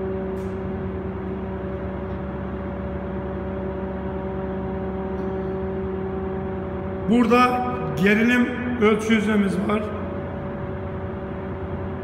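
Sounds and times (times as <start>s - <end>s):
machinery hum with steady tones: 0.0s - 12.0s.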